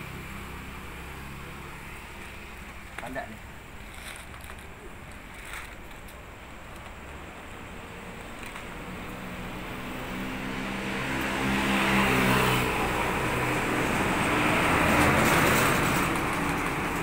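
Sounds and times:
vehicle passing: 0:06.7 - 0:17.0.

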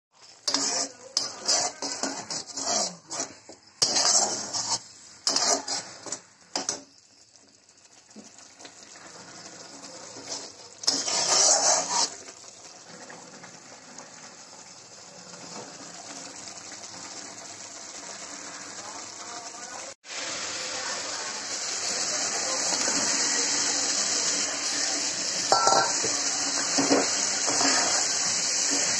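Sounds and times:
metal spatula scraping steel pan: 0:00.1 - 0:06.8, 0:09.1 - 0:12.3, 0:24.2 - 0:28.9
paste sizzling in oil: 0:00.1 - 0:28.9.

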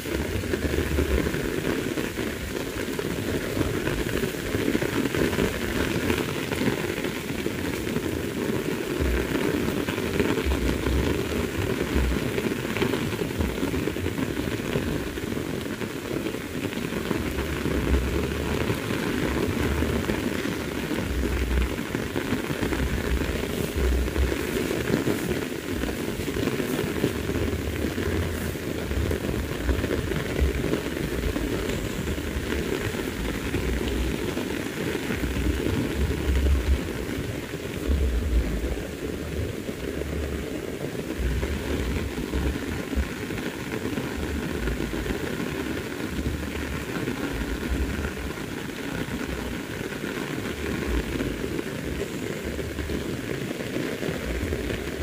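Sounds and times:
heavy rain: 0:00.0 - 0:55.0
low rumble: 0:21.0 - 0:21.9, 0:22.6 - 0:24.8, 0:25.7 - 0:34.3, 0:35.2 - 0:40.5, 0:41.2 - 0:43.1.

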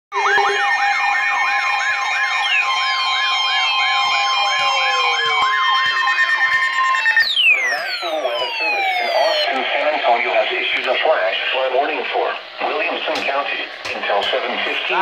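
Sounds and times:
rising siren whoop: 0:00.1 - 0:09.6
steady alarm tone: 0:00.1 - 0:15.0
falling electronic sweeps: 0:00.2 - 0:10.6.

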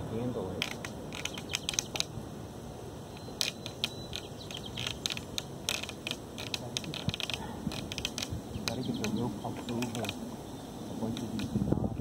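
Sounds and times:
clicks taps and creaks: 0:00.6 - 0:02.1, 0:03.1 - 0:10.2, 0:11.1 - 0:12.0.

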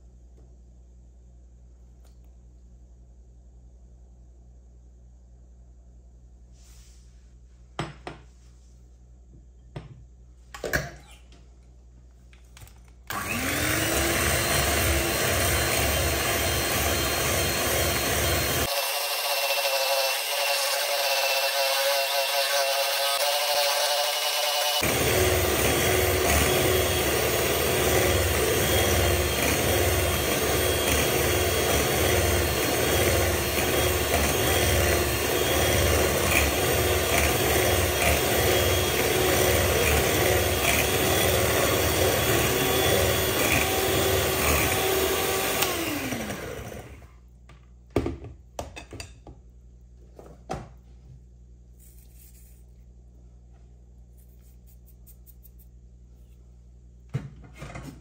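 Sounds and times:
electric hand mixer whisking: 0:13.1 - 0:47.0.

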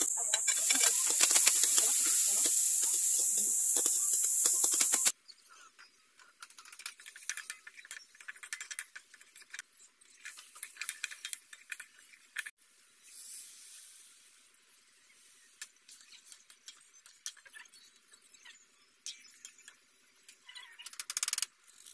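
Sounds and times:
fish frying in hot oil: 0:00.0 - 0:05.1
hiss of steam: 0:00.0 - 0:05.1, 0:13.0 - 0:14.3.

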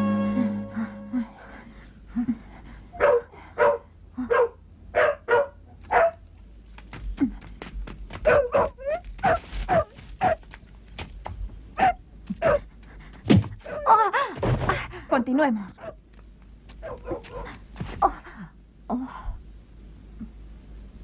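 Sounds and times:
dog barking: 0:03.0 - 0:06.2, 0:08.2 - 0:10.4, 0:11.8 - 0:12.6, 0:16.8 - 0:17.5.

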